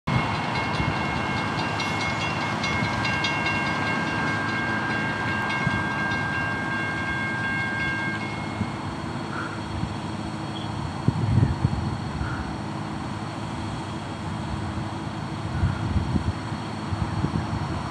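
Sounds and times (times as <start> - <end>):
level crossing bells ringing: 0.1 - 8.9
steady high tone: 0.1 - 9.7.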